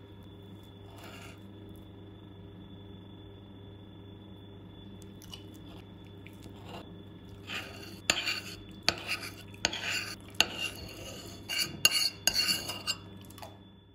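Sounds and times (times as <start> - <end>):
cutlery clinking and scraping plate: 7.4 - 13.1.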